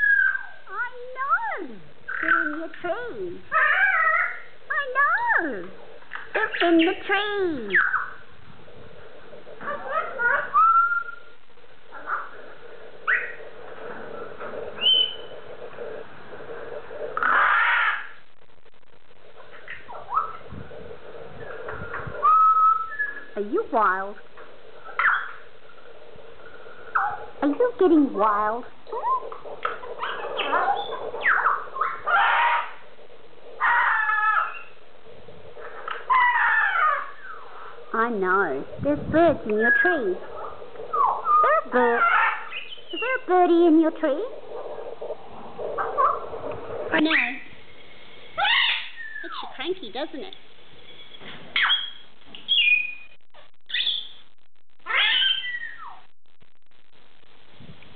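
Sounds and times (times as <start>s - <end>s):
macaw screaming and squawking: 0.0s - 1.3s, 3.5s - 5.2s, 6.4s - 8.2s, 9.6s - 11.3s, 13.1s - 13.4s, 17.2s - 18.2s, 22.0s - 23.4s, 25.0s - 25.5s, 28.9s - 32.8s, 33.6s - 34.8s, 35.9s - 37.6s, 40.9s - 43.3s, 45.8s - 46.3s, 48.4s - 49.6s, 51.0s - 53.1s, 54.8s - 56.0s
macaw calling: 17.2s - 18.2s, 33.6s - 34.8s, 48.4s - 49.6s, 50.9s - 53.1s, 54.9s - 56.0s.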